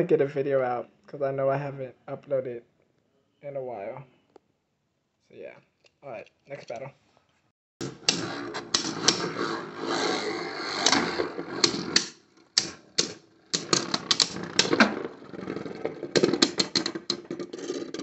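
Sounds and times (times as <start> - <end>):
spinning tops clattering: 7.8 - 18.0.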